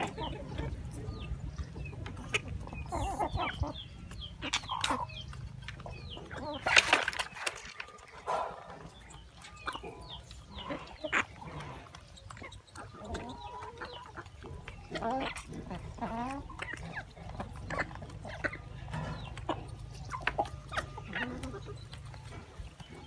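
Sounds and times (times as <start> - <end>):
beaks pecking at coconut: 0.0 - 23.0
chickens clucking: 0.0 - 23.0.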